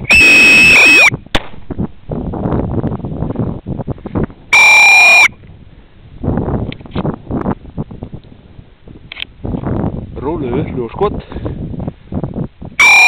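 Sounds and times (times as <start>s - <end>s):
shrill whistle blasts: 0.0s - 1.1s, 4.6s - 5.3s, 12.8s - 13.0s.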